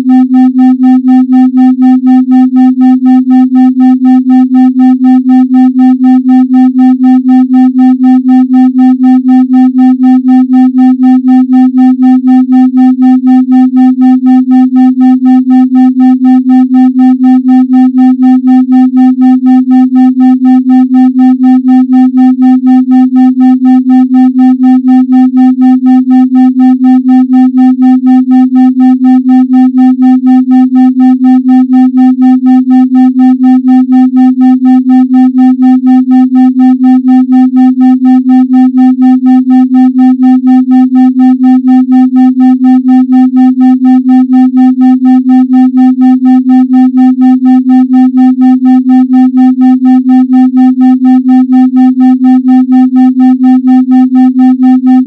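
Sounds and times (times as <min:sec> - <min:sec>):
pulsing synthesized tone: 0:04.8 - 0:55.0.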